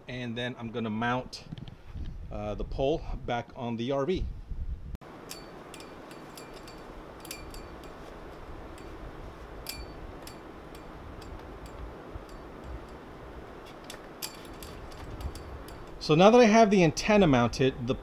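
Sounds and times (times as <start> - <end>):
steady background hiss: 5.0 - 18.0.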